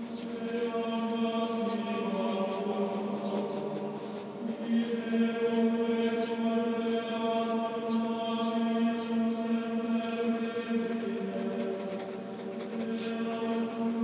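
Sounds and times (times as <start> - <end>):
pen scratching on paper: 0.0 - 5.7, 10.5 - 14.0
voices chanting long held notes: 0.0 - 14.0.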